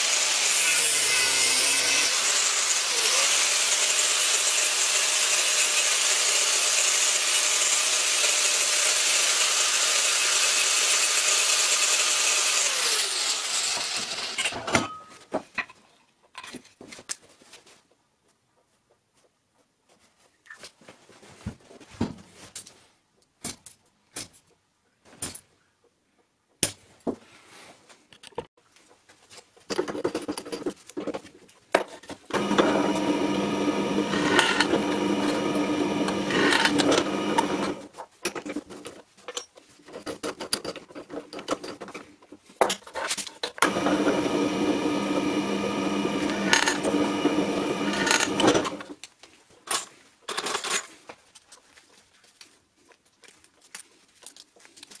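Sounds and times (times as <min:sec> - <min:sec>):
drill press drilling metal: 0:32.3 - 0:37.8, 0:43.6 - 0:48.9.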